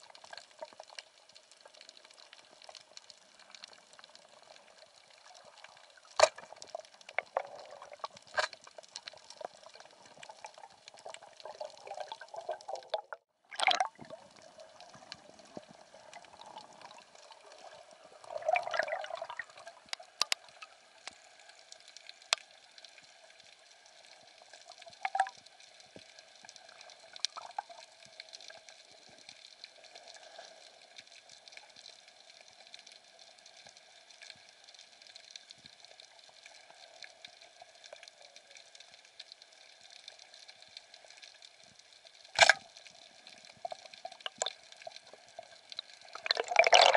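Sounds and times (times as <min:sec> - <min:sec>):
sharp clicks and crackles: 0:00.1 - 0:13.1, 0:19.8 - 0:46.9
water surging: 0:09.3 - 0:19.8, 0:44.2 - 0:46.9.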